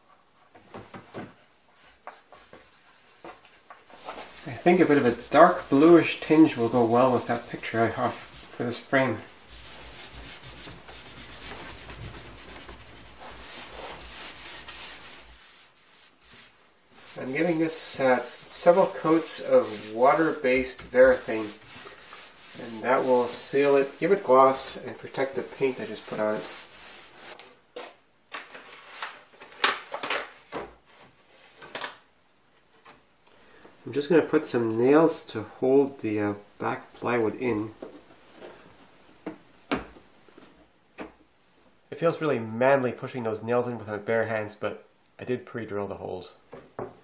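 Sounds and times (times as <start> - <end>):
pad rubbing on wood: 9.5 - 23.9.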